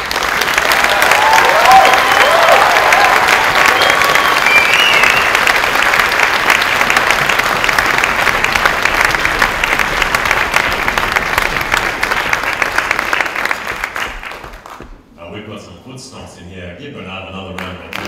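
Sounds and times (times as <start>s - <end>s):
audience applauding: 0.0s - 15.0s, 17.6s - 18.0s
short cry from crowd: 0.8s - 4.5s.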